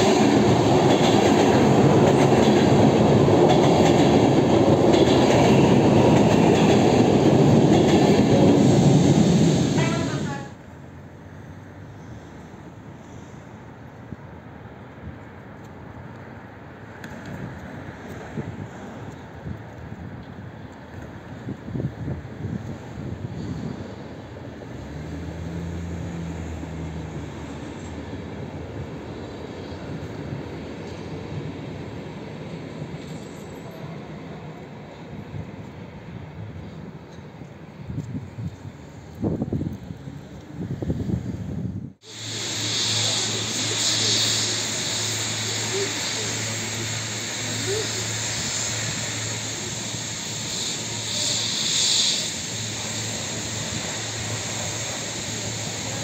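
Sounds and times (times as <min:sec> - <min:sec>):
hiss: 0:00.0 - 0:10.6, 0:11.8 - 0:14.1, 0:21.4 - 0:35.6, 0:42.0 - 0:56.0
train wheels rumbling on rails: 0:00.0 - 0:14.4, 0:15.0 - 0:56.0
low city hum: 0:09.9 - 0:56.0.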